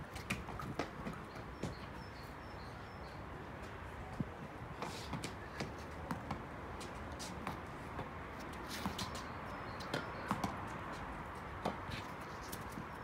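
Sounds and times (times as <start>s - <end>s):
ball bouncing on paving stones: 0.1s - 2.1s, 4.8s - 13.0s.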